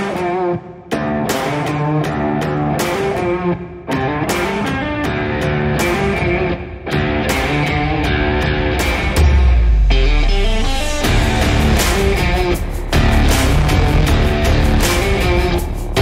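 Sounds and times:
guitar music over a beat: 0:00.0 - 0:16.0.

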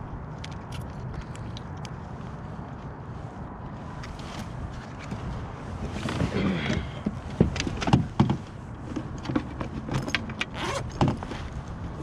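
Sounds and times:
knocks and clatter of handling: 0:05.9 - 0:11.5
zipper rasping open: 0:10.5 - 0:11.0.

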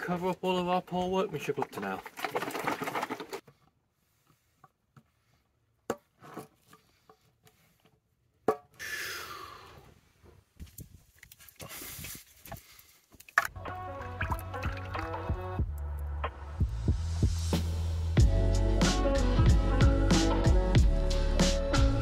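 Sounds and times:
music: 0:13.5 - 0:22.0.

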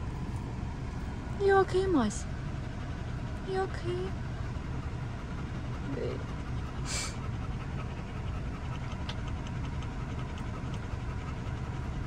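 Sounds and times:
car engine low rumble: 0:00.0 - 0:12.0
dog panting: 0:00.0 - 0:12.0.

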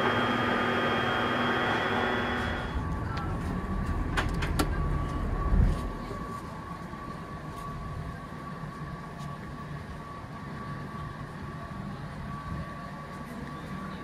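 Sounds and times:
high-pitched hum: 0:00.0 - 0:04.1.

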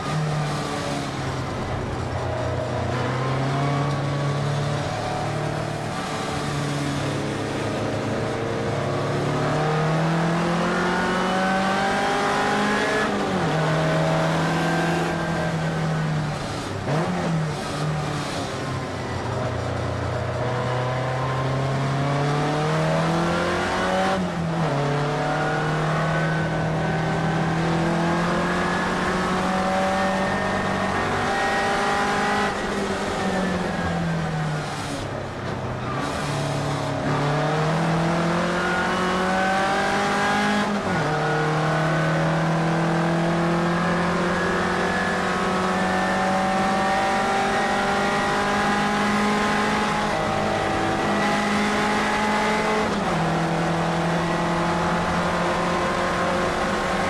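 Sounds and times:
race car engine revving: 0:00.0 - 0:57.0.

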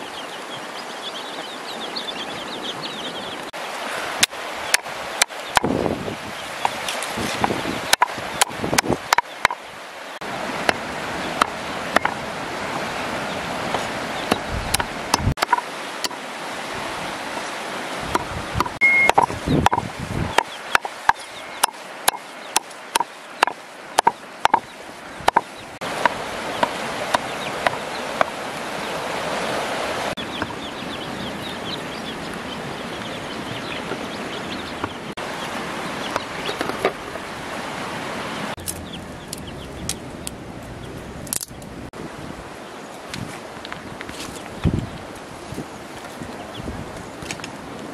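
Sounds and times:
stream rushing: 0:00.0 - 0:47.9
cleaver chopping meat on wood: 0:18.2 - 0:24.6.

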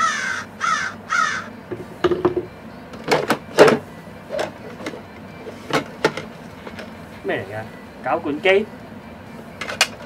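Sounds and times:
crow cawing: 0:00.0 - 0:01.6.

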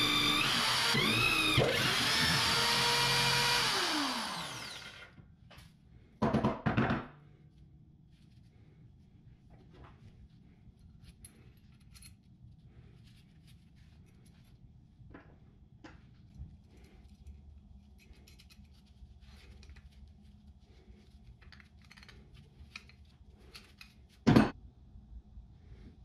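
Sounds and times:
metal threads scraping and clicking: 0:16.3 - 0:20.3, 0:21.2 - 0:24.2.

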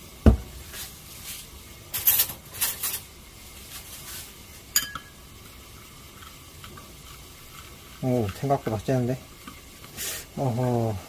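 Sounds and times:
spoon clinking on bowl rim: 0:04.7 - 0:05.2.

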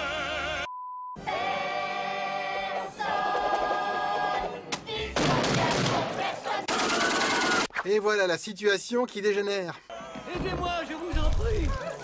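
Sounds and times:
choir holding chords: 0:00.0 - 0:06.7.

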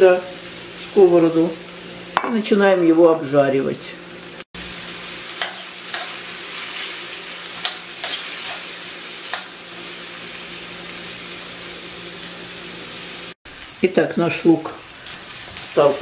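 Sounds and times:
onion sizzling in hot oil: 0:00.0 - 0:16.0
metal spoon scraping pan: 0:05.4 - 0:06.9, 0:07.6 - 0:09.6.

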